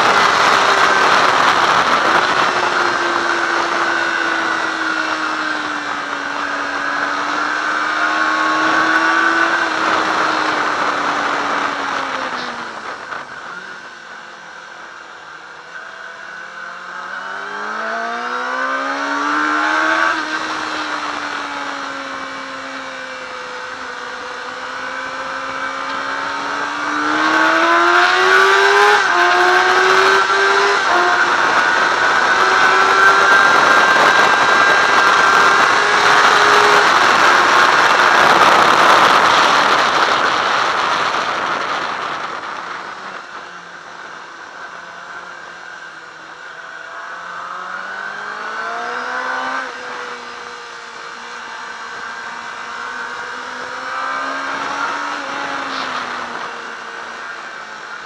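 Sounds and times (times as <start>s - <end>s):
wind rush: 0.0s - 14.0s, 17.5s - 44.6s
motorcycle engine revving: 0.0s - 58.0s.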